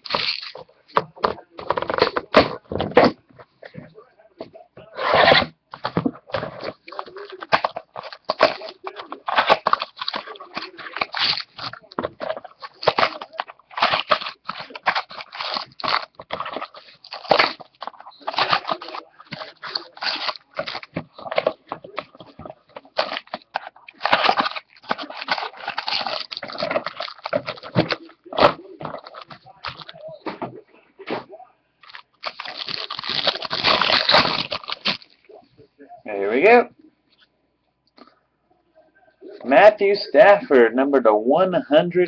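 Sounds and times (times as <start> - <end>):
foil wrappers crinkling and tearing: 0.0 - 2.6, 5.0 - 30.2, 31.8 - 35.4.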